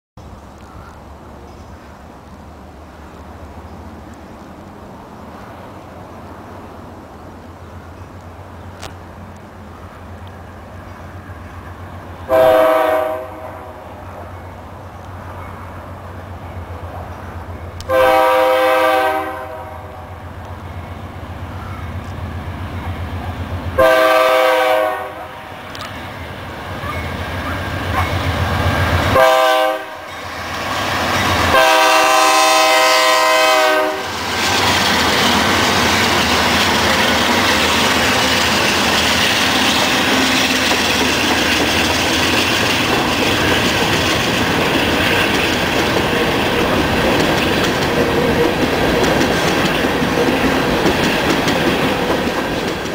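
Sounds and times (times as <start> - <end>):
diesel locomotive rumble: 0.2 - 52.9
train horn blasts: 12.3 - 14.0, 17.8 - 20.2, 23.8 - 25.7, 29.1 - 30.3, 31.3 - 34.2
steel wheels on rails: 25.0 - 52.9.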